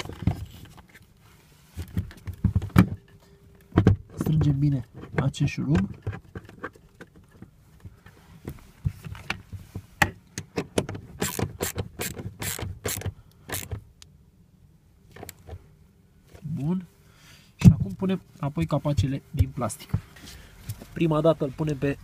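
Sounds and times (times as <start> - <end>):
socket ratchet clicking: 11.2 - 13.8.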